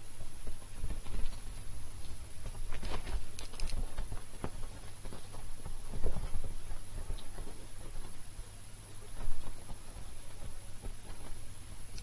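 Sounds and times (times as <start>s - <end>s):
kittens' paws thumping and pattering: 0.2s - 11.6s
scratchy rustles on fabric: 0.4s - 8.4s.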